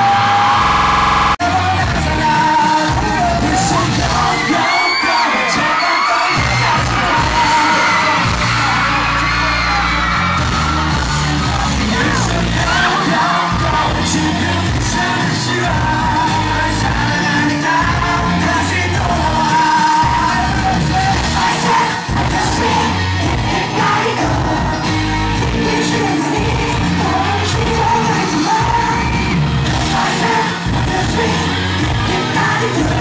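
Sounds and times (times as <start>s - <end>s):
steady drum beat: 1.4s - 4.6s, 6.4s - 9.2s, 9.9s - 33.0s
man singing into a microphone: 1.4s - 8.7s, 11.2s - 22.9s, 23.7s - 29.2s, 30.0s - 33.0s.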